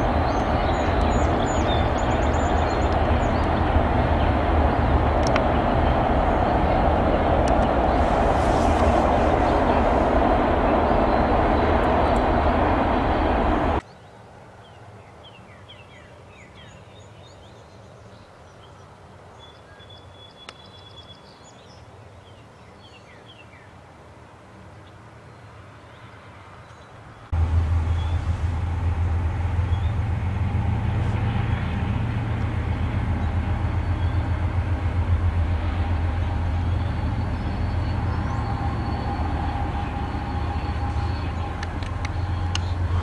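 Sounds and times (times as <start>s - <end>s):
diesel locomotive engine rumble: 0.0s - 13.8s, 27.2s - 43.0s
small birds chirping: 0.0s - 23.7s, 36.2s - 43.0s.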